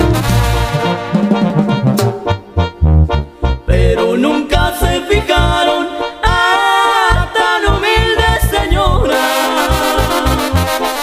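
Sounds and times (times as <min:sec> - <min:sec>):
bass pulse: 0:00.0 - 0:04.0
held brass chords: 0:00.0 - 0:07.6, 0:09.0 - 0:11.0
voices singing a melody: 0:03.7 - 0:10.9.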